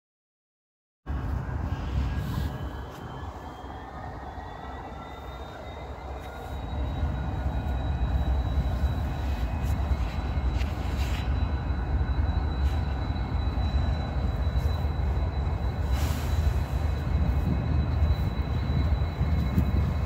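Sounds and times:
locomotive engine rumbling: 0:01.1 - 0:20.0
brief air hiss: 0:15.8 - 0:16.8.

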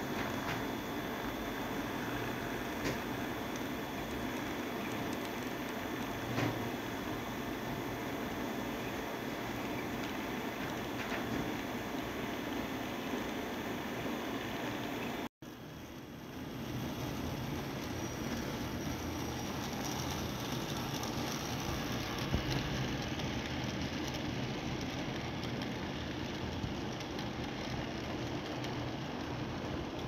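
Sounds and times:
model train rolling rumble: 0:15.7 - 0:30.0.

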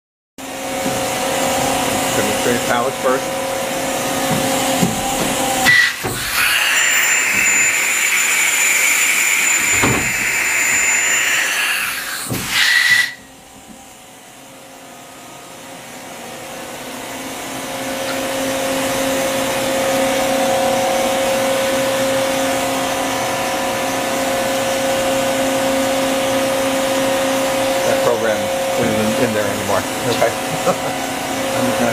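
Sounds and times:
steady machine hum: 0:00.4 - 0:31.9
short high note: 0:05.6 - 0:06.0
loud hiss of air: 0:09.3 - 0:13.2.

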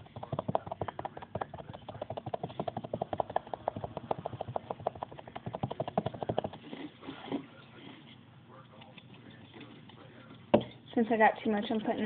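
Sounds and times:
sponge tapping paint on canvas: 0:00.0 - 0:06.6.

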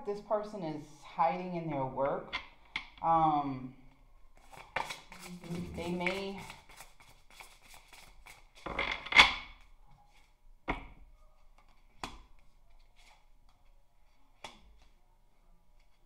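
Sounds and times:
cards being shuffled: 0:04.4 - 0:09.2.

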